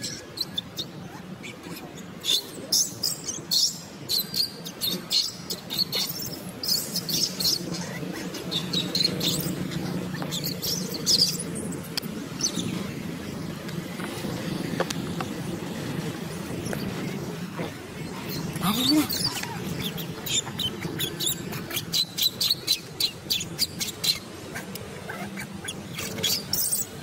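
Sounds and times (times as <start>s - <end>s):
steady low hum: 0.0s - 27.0s
baby monkey squealing: 18.6s - 26.9s.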